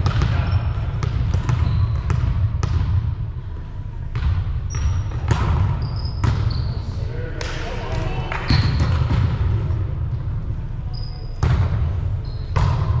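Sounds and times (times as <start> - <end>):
sneaker squeaks: 0.1 - 2.4, 4.7 - 7.0, 8.5 - 9.1, 10.9 - 13.0.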